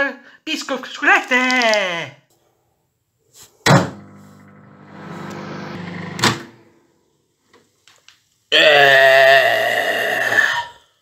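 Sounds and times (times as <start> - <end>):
microwave oven humming: 3.7 - 6.6.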